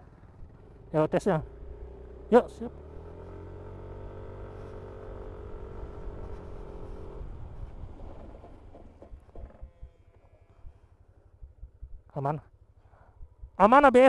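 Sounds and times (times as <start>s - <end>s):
scooter engine running: 0.0s - 11.8s
wind rumble on microphone: 6.0s - 10.8s, 11.4s - 12.1s.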